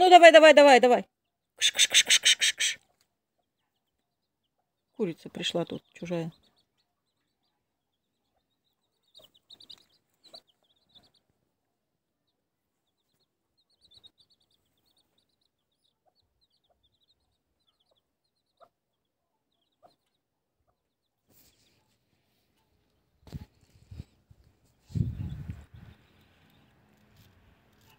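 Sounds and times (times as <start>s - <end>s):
chicks peeping: 1.7s - 27.9s.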